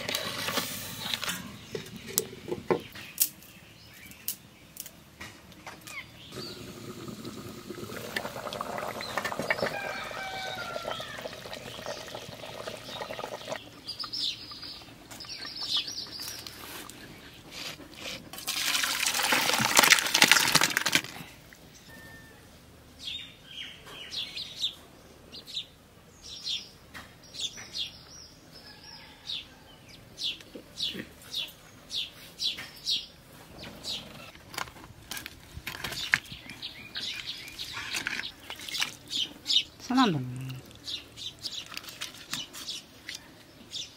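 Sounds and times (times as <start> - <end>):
birds chirping: 5.6 - 17.8, 21.7 - 34.4, 35.8 - 43.9
curry splashing into a pan: 18.4 - 21.1.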